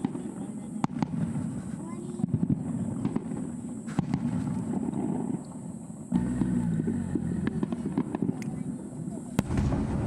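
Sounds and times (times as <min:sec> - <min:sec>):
fireworks crackling and popping: 0:00.0 - 0:10.0.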